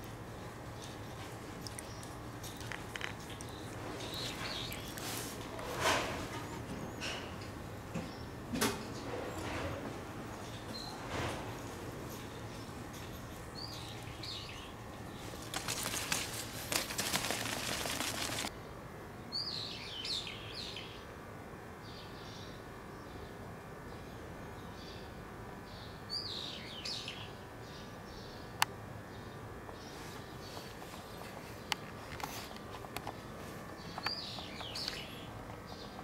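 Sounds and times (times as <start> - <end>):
small birds chirping: 0.0 - 5.4, 12.2 - 18.5, 25.7 - 36.0
outdoor background noise: 0.0 - 36.0
rustling noise: 2.6 - 6.6, 15.1 - 18.5.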